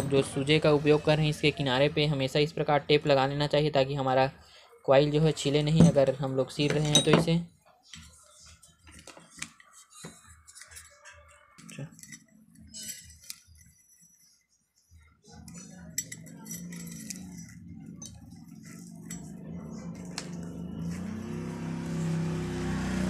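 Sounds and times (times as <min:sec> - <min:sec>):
light clicks and clinks: 0:15.4 - 0:19.4
vehicle engine hum: 0:16.2 - 0:23.0.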